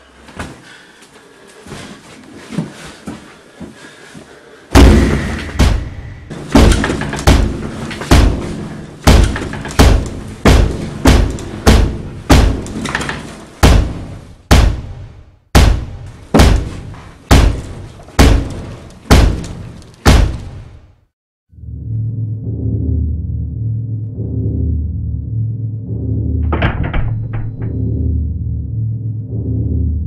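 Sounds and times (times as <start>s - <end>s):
heavy pounding on a cabin: 4.7s - 20.6s.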